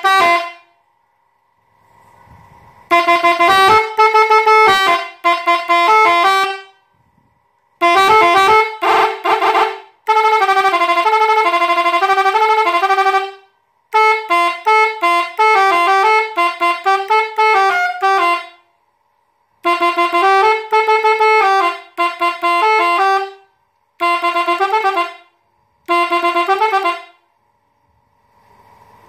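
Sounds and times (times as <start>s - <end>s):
bus horn playing melodic tunes: 0.0s - 0.8s, 1.8s - 7.1s, 7.8s - 18.7s, 19.6s - 27.3s.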